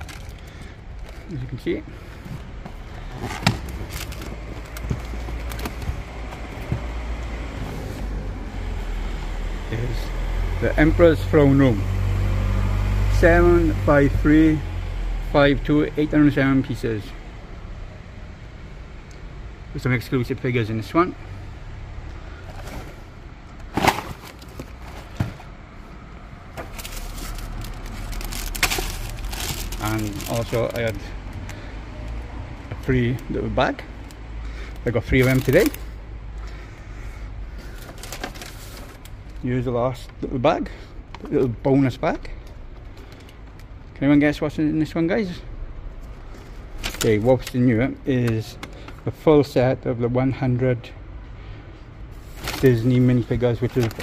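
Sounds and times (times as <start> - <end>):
low steady rumble: 19.0 - 39.8.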